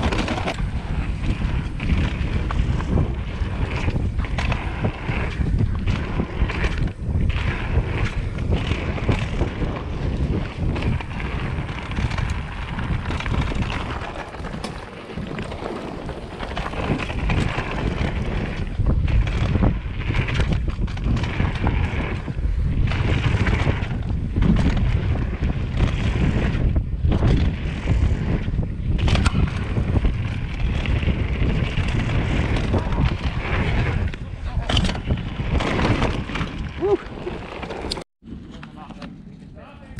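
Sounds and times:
tyres rolling over dirt: 0:00.0 - 0:38.5
bike knocks and rattles: 0:00.0 - 0:39.2
wind buffeting microphone: 0:00.0 - 0:39.9.

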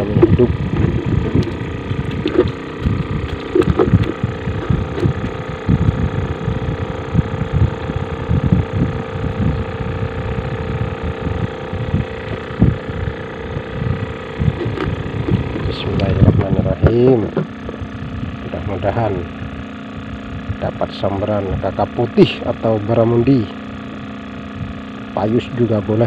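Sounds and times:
wind buffeting microphone: 0:00.0 - 0:20.6
motor humming: 0:00.0 - 0:26.0.

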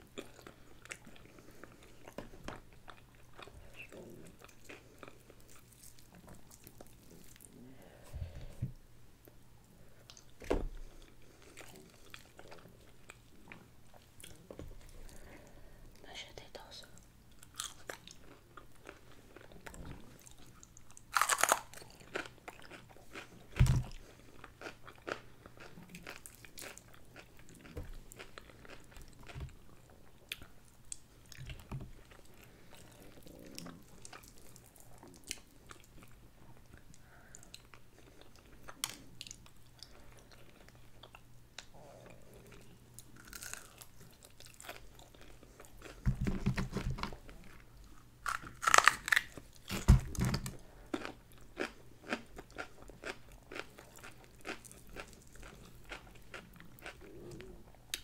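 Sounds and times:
chewing: 0:00.1 - 0:07.6, 0:10.9 - 0:15.5, 0:17.3 - 0:46.1, 0:47.2 - 0:58.0
crunchy bites of fried chicken: 0:20.3 - 0:29.5, 0:43.0 - 0:46.7, 0:48.2 - 0:57.0.

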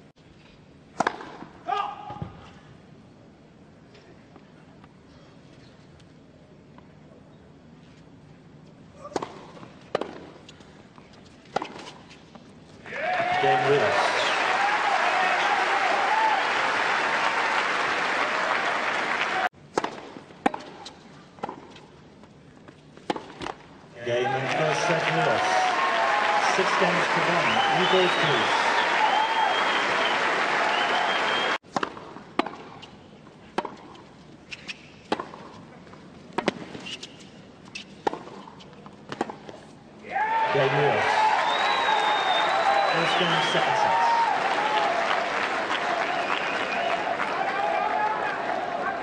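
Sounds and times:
racket hitting tennis ball: 0:01.0 - 0:01.5, 0:09.1 - 0:10.3, 0:11.5 - 0:12.1, 0:19.7 - 0:21.9, 0:23.0 - 0:23.6, 0:31.7 - 0:32.9, 0:33.5 - 0:35.6, 0:36.3 - 0:37.0, 0:37.7 - 0:39.6
crowd applauding: 0:13.4 - 0:19.5, 0:24.2 - 0:31.6, 0:40.5 - 0:49.0.

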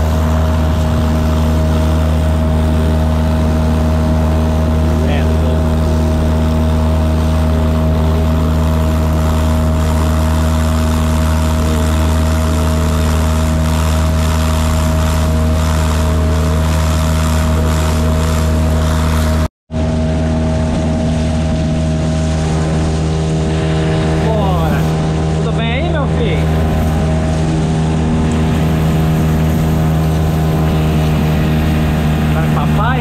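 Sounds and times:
kayak motor running steadily: 0:00.0 - 0:33.0
water noise from hull: 0:00.0 - 0:33.0.

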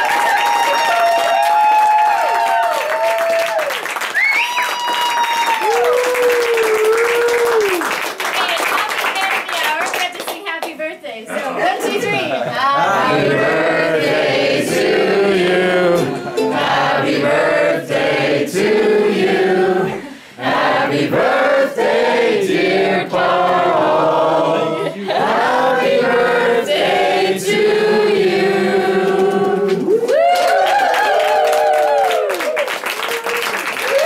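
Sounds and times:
group of voices singing: 0:12.0 - 0:30.0.

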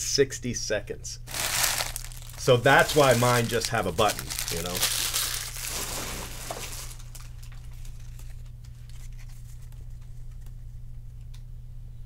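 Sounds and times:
steady low hum: 0:00.0 - 0:12.0
card pack wrapper crinkling: 0:01.3 - 0:09.9
cards rustling as handled: 0:01.3 - 0:10.8.

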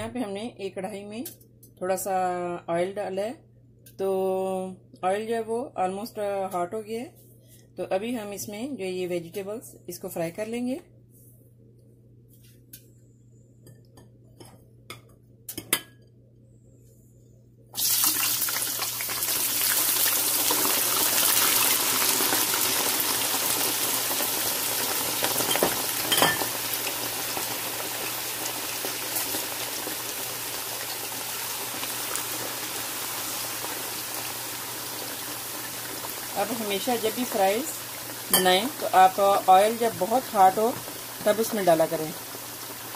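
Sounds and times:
potatoes sizzling in hot oil: 0:17.8 - 0:42.9.

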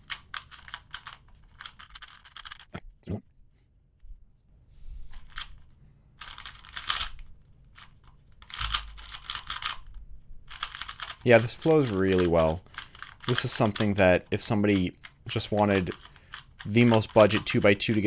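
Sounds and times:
plastic puzzle cube clicking: 0:00.0 - 0:02.7, 0:06.2 - 0:09.9, 0:10.5 - 0:18.0.

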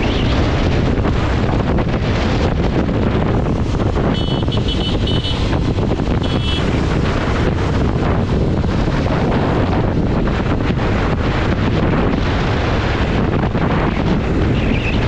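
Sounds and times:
motorcycle engine running: 0:00.0 - 0:15.0
wind rushing over microphone: 0:00.0 - 0:15.0
high-pitched horn beeps: 0:04.0 - 0:05.5, 0:06.2 - 0:06.7.

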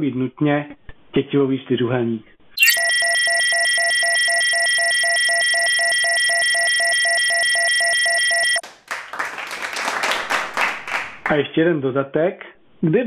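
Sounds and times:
electronic tone with pulsing beep: 0:02.6 - 0:08.6.

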